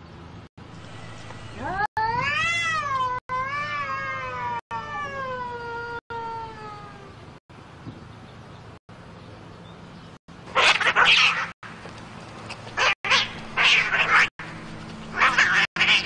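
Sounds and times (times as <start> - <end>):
cats screeching and hissing: 1.6 - 7.1, 10.6 - 11.6, 12.8 - 14.3, 15.1 - 16.0.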